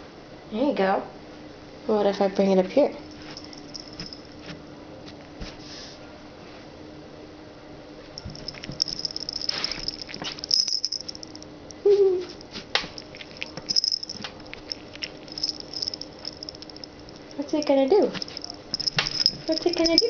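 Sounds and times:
collar tag jingling: 3.0s - 4.4s, 8.2s - 20.0s.

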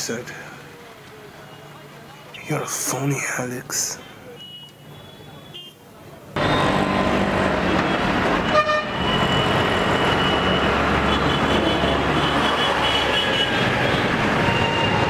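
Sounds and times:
traffic engine rumble: 0.0s - 15.0s
car horn honk: 4.4s - 5.8s, 8.4s - 13.6s.

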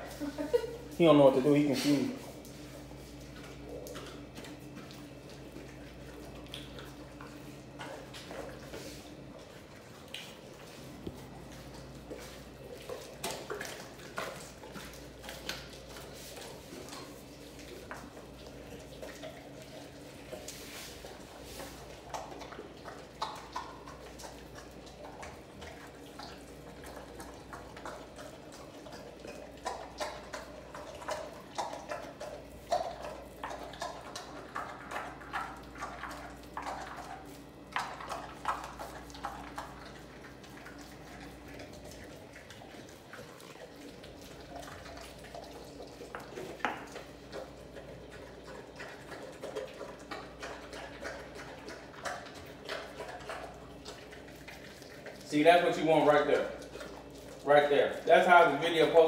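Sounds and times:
dog chewing wet meat: 0.0s - 59.0s.

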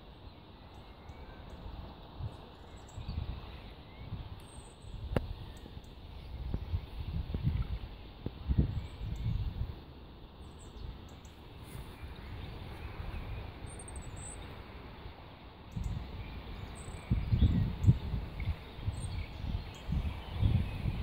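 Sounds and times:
small birds chirping: 0.0s - 21.0s
low rumbling on microphone: 1.7s - 9.8s, 15.7s - 21.0s.

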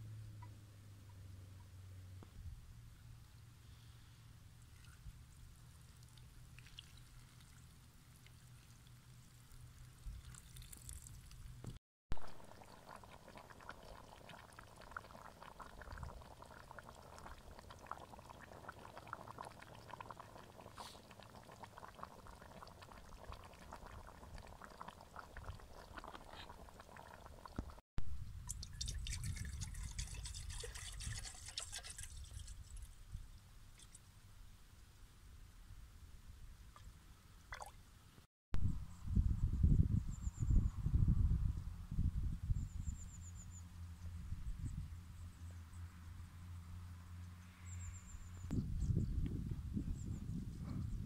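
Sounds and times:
liquid pouring and splashing: 5.8s - 27.8s, 28.5s - 32.9s.

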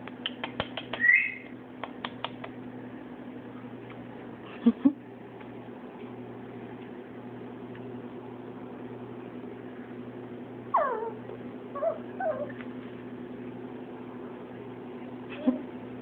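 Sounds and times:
steady low hum: 0.0s - 16.0s
dog whining: 10.7s - 12.6s.

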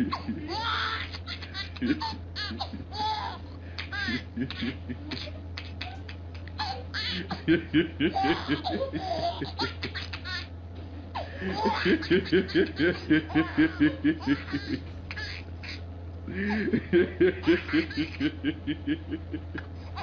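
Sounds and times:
baby laughing: 0.0s - 10.5s, 11.1s - 20.0s
man laughing: 3.6s - 5.1s, 6.8s - 9.8s, 11.2s - 15.1s, 16.3s - 20.0s.

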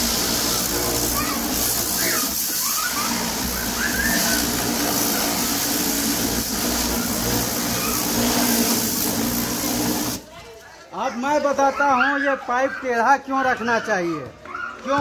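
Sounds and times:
pump motor humming: 0.0s - 10.3s
water jet hissing: 0.0s - 10.4s.

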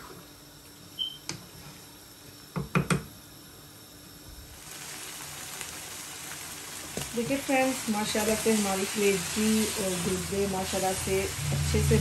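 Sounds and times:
food sizzling in pan: 4.5s - 12.0s.

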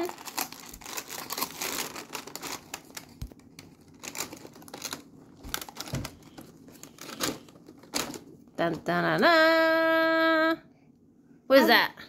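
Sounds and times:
cardboard being torn open: 0.0s - 3.0s
crinkling and small clicks: 0.0s - 9.3s.

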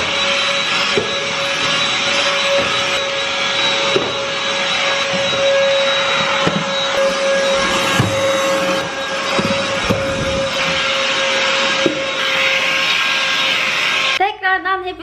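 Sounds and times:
handheld vacuum motor whine: 0.0s - 14.2s.

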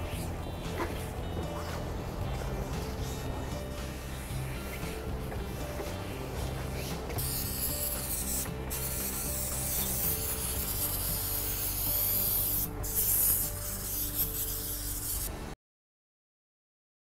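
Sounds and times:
aerosol can spraying: 5.8s - 15.3s.

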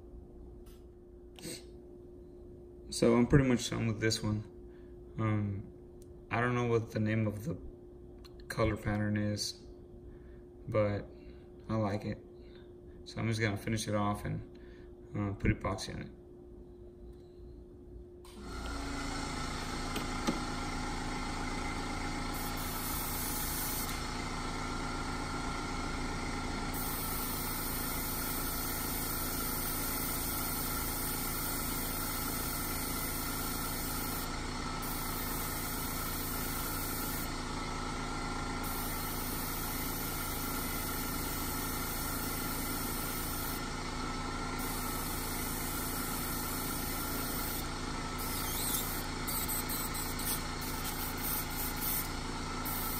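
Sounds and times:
compressor humming: 18.2s - 52.9s
airbrush spraying hiss: 22.3s - 24.1s, 26.7s - 37.4s, 38.6s - 43.8s, 44.6s - 52.9s.

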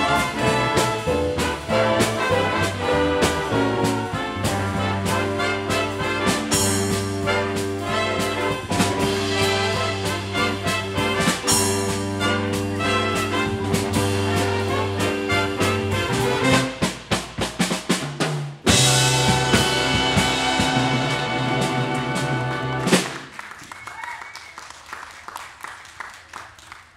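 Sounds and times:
drum fill: 0.0s - 23.3s
big band playing swing: 0.0s - 24.2s
light clapping: 22.8s - 26.9s.

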